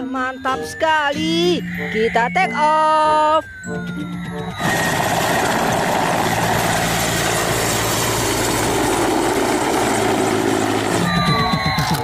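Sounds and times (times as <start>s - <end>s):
helicopter flying low: 3.9s - 12.0s
low drone: 4.0s - 11.2s.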